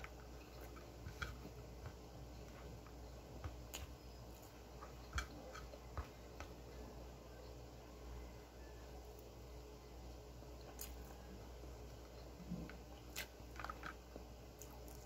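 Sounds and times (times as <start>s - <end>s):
low steady hum: 0.0s - 15.0s
person chewing: 10.7s - 11.2s.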